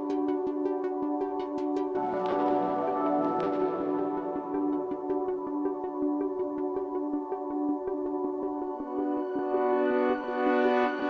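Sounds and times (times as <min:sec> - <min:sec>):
electronic music beat: 0:00.0 - 0:07.8
held synthesizer chords: 0:00.0 - 0:11.0.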